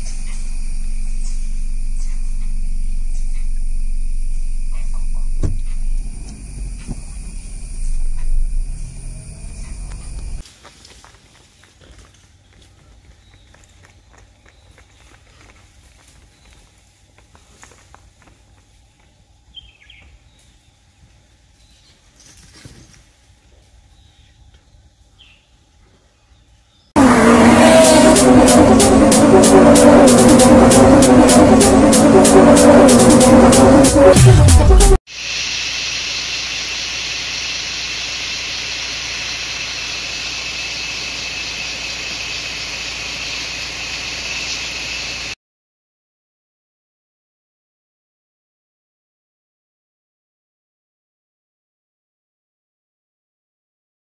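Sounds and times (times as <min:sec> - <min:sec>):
bird chirping: 0:00.0 - 0:10.4, 0:35.4 - 0:45.3
faint high whine: 0:00.0 - 0:10.4
low steady rumble: 0:00.0 - 0:10.4.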